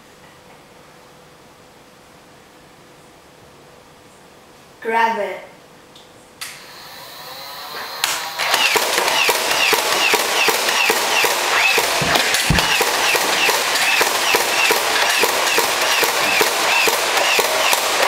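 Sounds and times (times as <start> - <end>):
toy blaster firing full-auto: 6.5 - 18.0
blaster motor whir: 6.6 - 18.0
low thud: 11.8 - 13.4.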